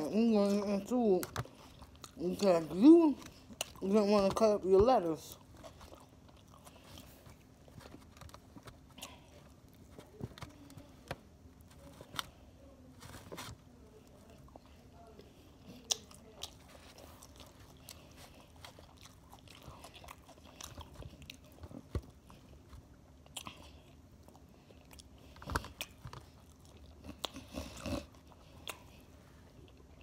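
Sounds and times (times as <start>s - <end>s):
person chewing crunchy salad: 0.8s - 4.0s, 5.1s - 10.2s, 14.3s - 30.0s.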